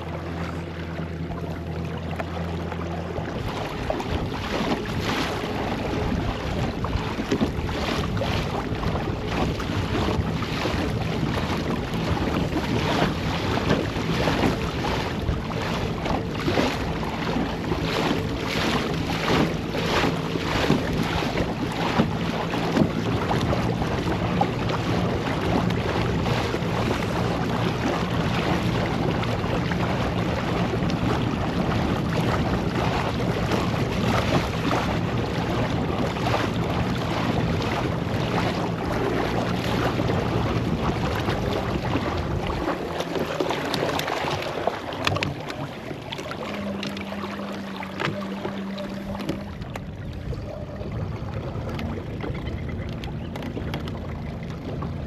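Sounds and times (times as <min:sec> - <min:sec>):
water splashing against hull: 0:00.0 - 0:55.0
wind buffeting microphone: 0:03.2 - 0:55.0.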